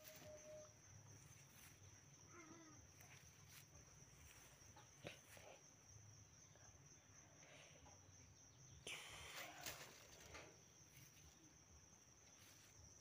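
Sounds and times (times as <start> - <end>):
faint wavering animal call: 0.0 - 0.8.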